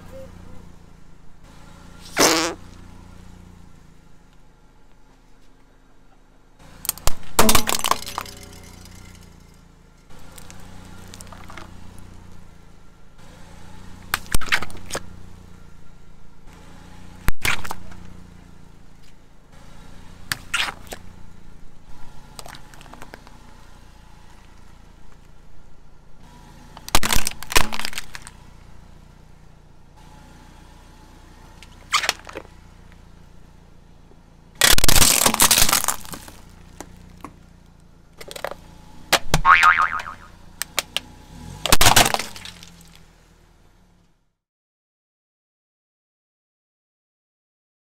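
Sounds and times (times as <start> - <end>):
tyre crushing plastic toys: 26.9 - 28.3, 34.6 - 36.5, 41.6 - 43.0.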